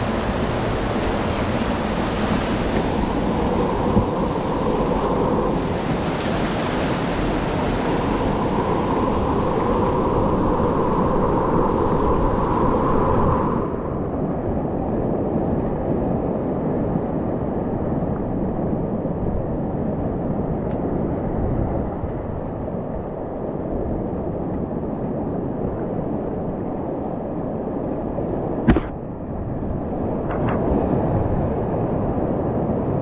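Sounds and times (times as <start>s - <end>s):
whitewater rapid roaring: 0.0s - 13.9s
sharp knock: 28.7s - 29.0s.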